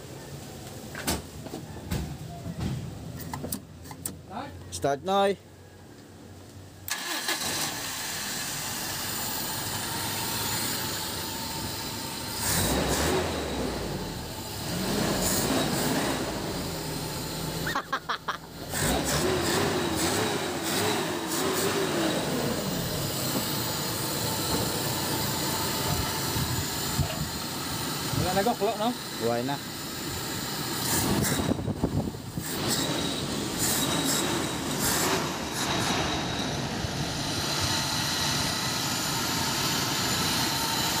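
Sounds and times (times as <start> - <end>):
car engine running: 7.6 - 41.0
wavering whine: 19.8 - 41.0.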